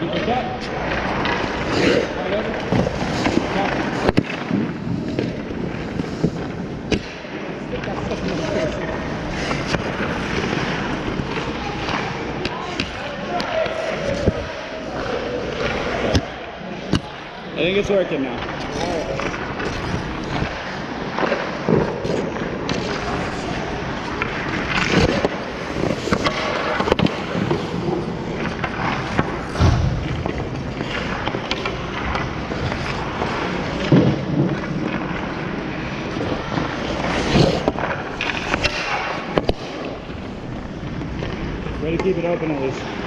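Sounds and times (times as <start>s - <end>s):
skates scraping on ice: 0.0s - 43.0s
pucks knocking sticks and boards: 2.5s - 8.4s, 9.2s - 17.2s, 24.0s - 35.3s, 36.2s - 42.3s.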